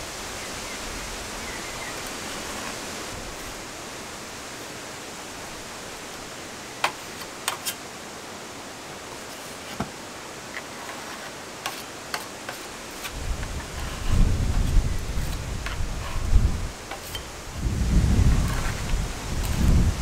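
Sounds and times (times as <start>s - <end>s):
putty knife scraping wood: 10.6s - 16.3s, 16.9s - 17.3s.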